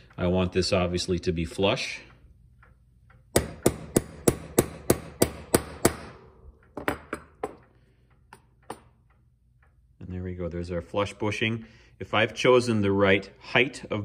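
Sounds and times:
hammer tapping metal punch: 2.6s - 9.8s.

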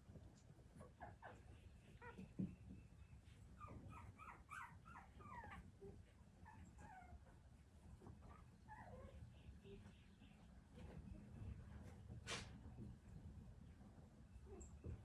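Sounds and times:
puppies squeaking and whimpering: 3.6s - 5.7s.

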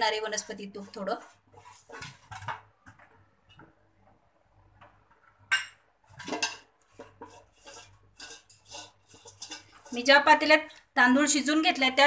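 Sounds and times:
hand rubbing inside metal pot: 6.1s - 10.1s.

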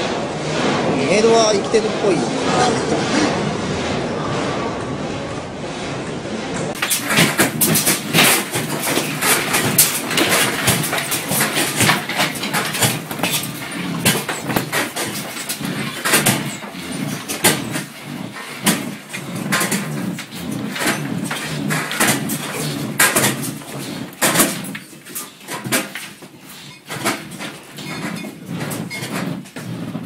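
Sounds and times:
low earthquake rumble: 0.0s - 24.8s
office objects rattling: 6.8s - 30.0s.

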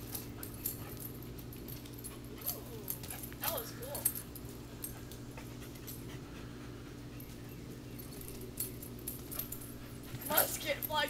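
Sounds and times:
steady low hum: 0.0s - 11.0s
small dog panting: 4.8s - 7.7s.

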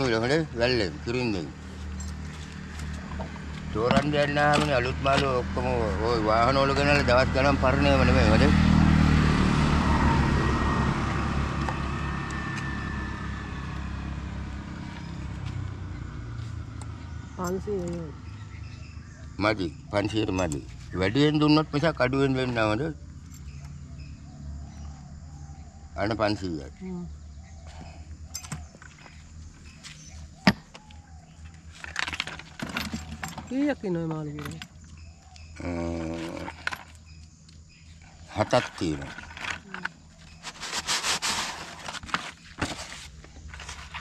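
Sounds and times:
motor scooter riding past: 5.4s - 17.3s.

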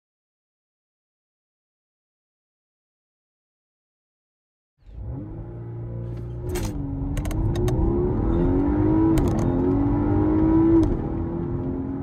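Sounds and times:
car engine accelerating: 4.8s - 12.0s.

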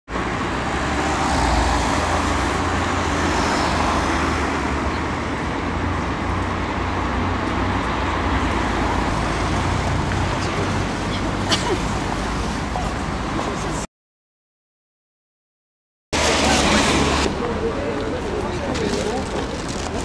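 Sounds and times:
road traffic engine rumble: 0.1s - 13.9s, 16.2s - 20.0s.

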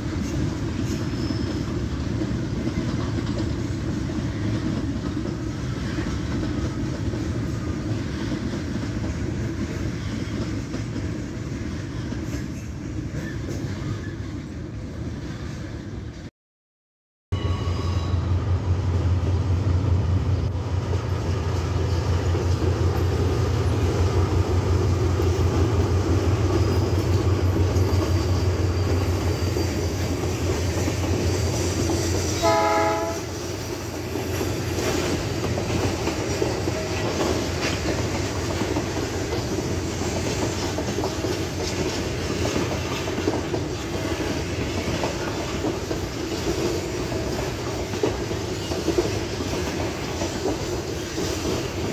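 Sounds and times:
freight train wheels clacking: 0.0s - 14.5s, 20.4s - 51.9s
train horn tone: 32.2s - 33.5s.

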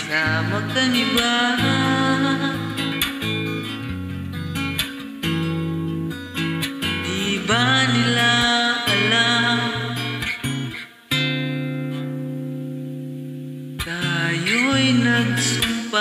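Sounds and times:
man singing: 0.0s - 3.3s, 7.0s - 10.2s, 13.8s - 16.0s
strummed acoustic guitar: 0.0s - 16.0s.

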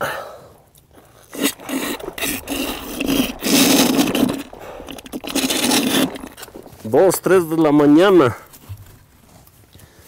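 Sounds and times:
hand scraper scraping plant: 1.2s - 8.6s.

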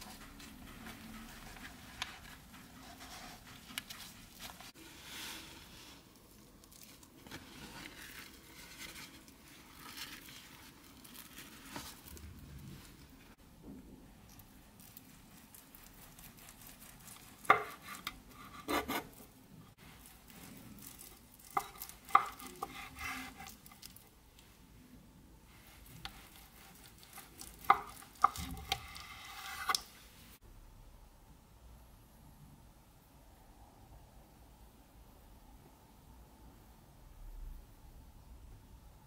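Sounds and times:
knife slicing food: 14.8s - 19.3s, 20.0s - 23.9s, 25.7s - 29.9s.

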